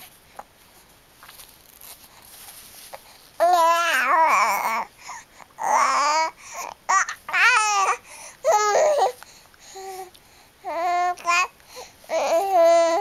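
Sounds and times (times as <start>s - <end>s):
baby babbling and cooing: 3.4s - 13.0s.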